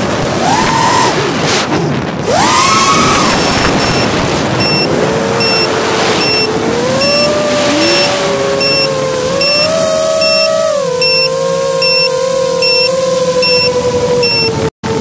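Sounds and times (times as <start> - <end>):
wind rush: 0.0 - 10.1
drone propellers whining: 0.0 - 15.0
short high beeps: 3.8 - 14.6.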